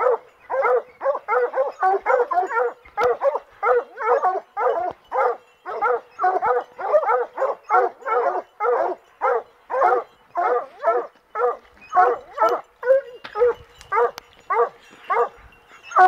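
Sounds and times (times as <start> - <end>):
hounds barking: 0.0 - 16.0.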